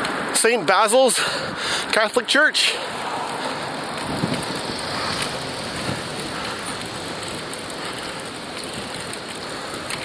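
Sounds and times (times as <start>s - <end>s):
road noise: 0.0s - 10.0s
wind rushing on microphone: 3.1s - 10.0s.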